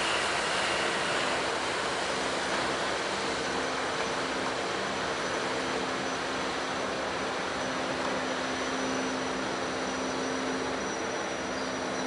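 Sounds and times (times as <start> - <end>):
constant rushing noise: 0.0 - 12.0
ship diesel engine humming: 0.0 - 12.0.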